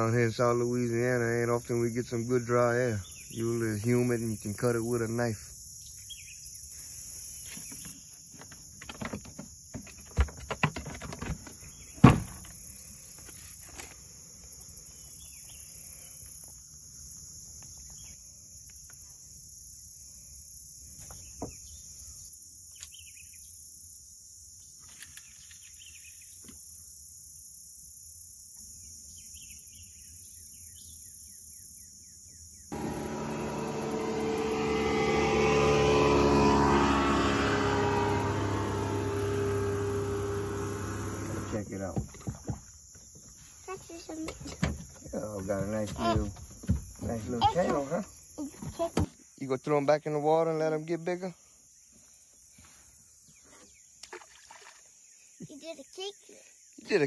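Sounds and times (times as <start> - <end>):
high-pitched insect chorus: 0.0 - 57.0
motorboat engine: 32.7 - 42.5.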